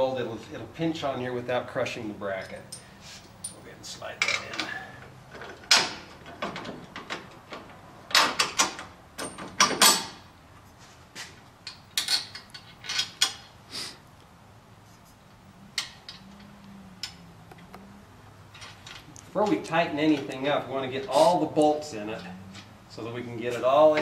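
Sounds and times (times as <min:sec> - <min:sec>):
metal clanks and knocks: 0:02.4 - 0:10.2.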